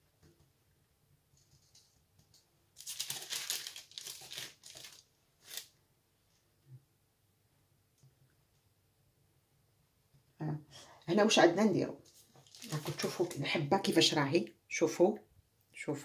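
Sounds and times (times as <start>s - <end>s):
baking paper crinkling: 2.8s - 5.8s, 12.1s - 13.5s.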